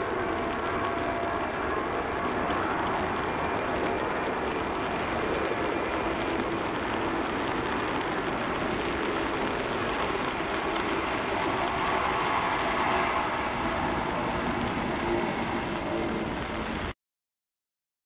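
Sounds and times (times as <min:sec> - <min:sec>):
jet engines running: 0:00.0 - 0:17.0.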